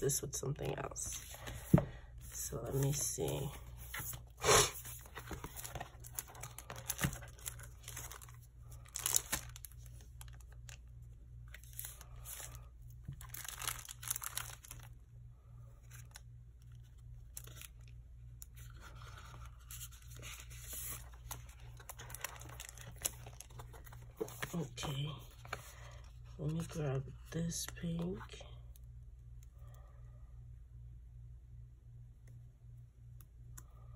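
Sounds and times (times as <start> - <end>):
plastic album pages rustling: 0.6 - 15.0, 15.8 - 28.3.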